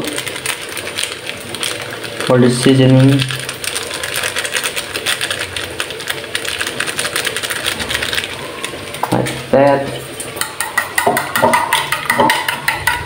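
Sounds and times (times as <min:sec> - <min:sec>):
plastic sachet crinkling: 0:00.0 - 0:09.4.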